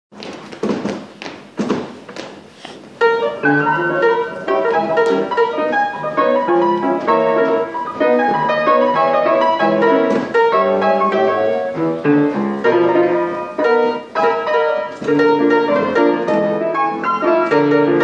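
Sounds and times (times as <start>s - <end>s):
player piano playing chords: 2.9s - 18.0s.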